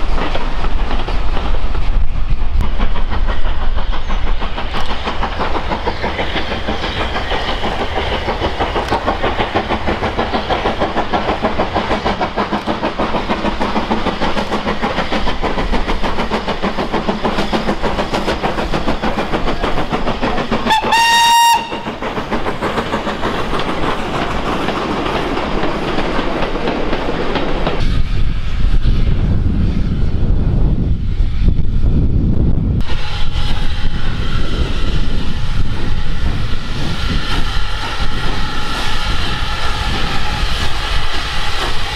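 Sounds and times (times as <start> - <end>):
steam locomotive exhaust beating: 0.0 - 41.9
steam whistle blast: 20.7 - 21.9.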